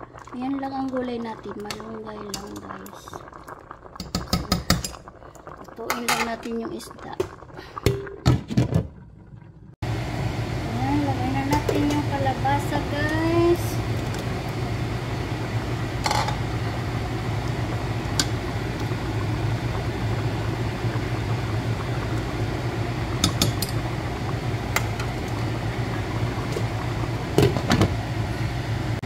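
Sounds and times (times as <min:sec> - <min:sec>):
broth boiling in a pot: 0:00.0 - 0:29.0
steady low hum: 0:09.8 - 0:29.0.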